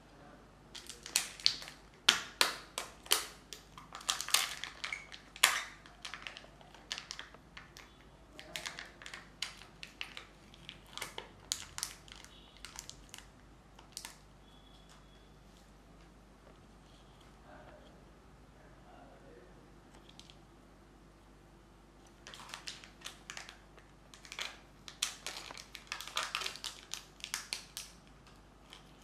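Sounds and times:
plastic egg halves cracking apart: 0.7s - 14.2s, 22.1s - 29.0s
soft crackling of peeled seal: 0.7s - 14.2s, 22.0s - 29.0s
wrapper crinkling and tearing: 0.7s - 14.2s, 22.1s - 29.0s.

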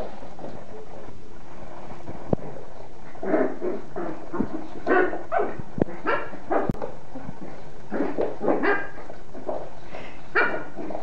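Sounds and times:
small dog barking: 4.9s - 6.7s, 8.5s - 9.0s.

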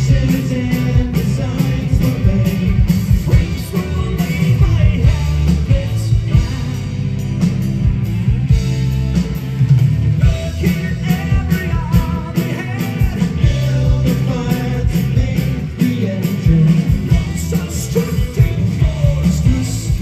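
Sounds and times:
rock band playing live: 0.0s - 20.0s
person singing: 10.2s - 20.0s.

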